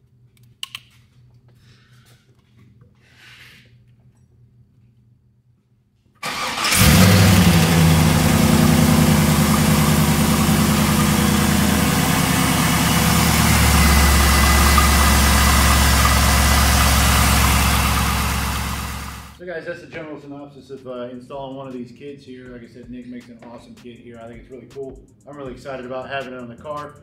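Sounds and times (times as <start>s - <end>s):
car engine starting and idling: 6.2s - 19.4s.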